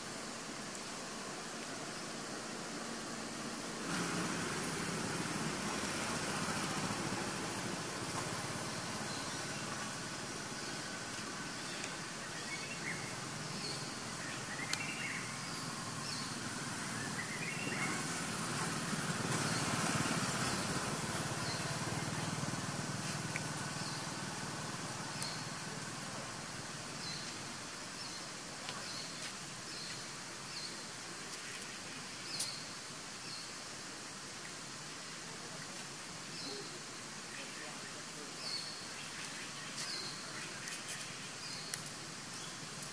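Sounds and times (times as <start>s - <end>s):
broad rush of noise: 0.0s - 42.9s
steady hiss: 0.0s - 42.9s.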